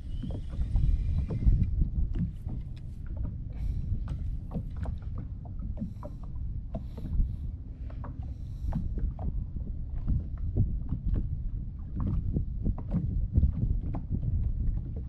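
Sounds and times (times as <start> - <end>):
choppy sea water: 0.0 - 15.0
wind rumbling on microphone: 0.0 - 15.0.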